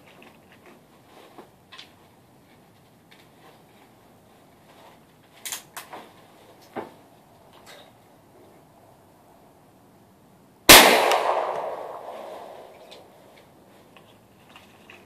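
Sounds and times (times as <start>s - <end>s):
rifle metallic clicks: 10.7s - 13.0s.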